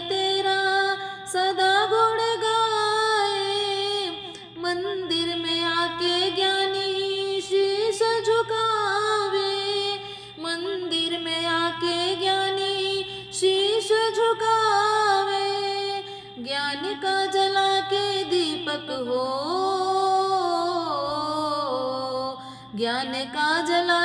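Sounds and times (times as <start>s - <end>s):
woman singing devotional song: 0.0s - 24.0s
singer breathing: 1.0s - 1.3s, 10.0s - 10.4s, 16.0s - 16.4s, 22.4s - 22.8s.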